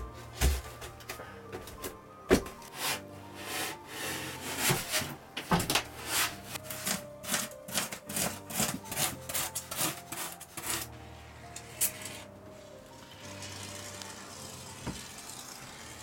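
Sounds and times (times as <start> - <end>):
hand saw rasping through foam board: 6.0 - 10.9.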